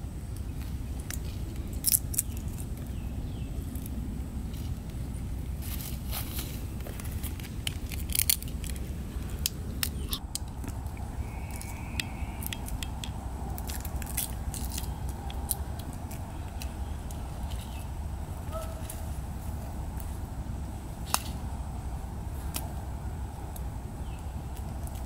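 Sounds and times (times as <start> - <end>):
eggshells cracking: 7.3 - 10.9.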